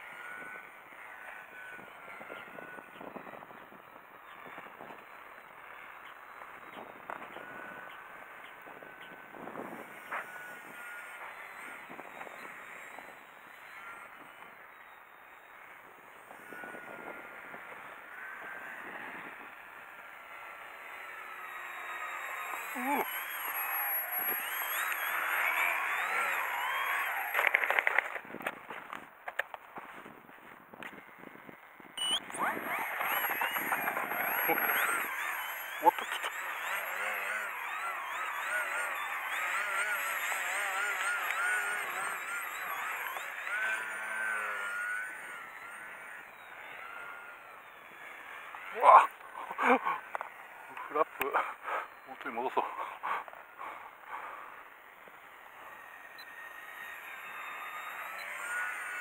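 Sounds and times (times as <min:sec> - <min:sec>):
model plane motor whining: 0:00.0 - 0:59.0
wind buffeting microphone: 0:06.5 - 0:10.8.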